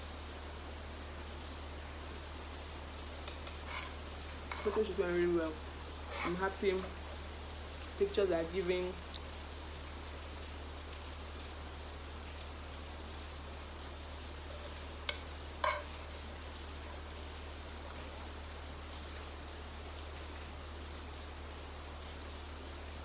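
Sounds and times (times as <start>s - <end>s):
rain hissing: 0.0s - 23.0s
metal spoon clicking on frying pan: 15.1s - 15.9s.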